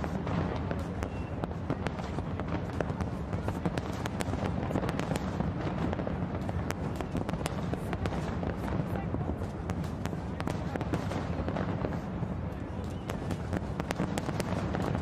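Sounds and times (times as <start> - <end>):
fireworks bursting with bangs and crackles: 0.0 - 15.0
rumble of explosions: 0.0 - 15.0.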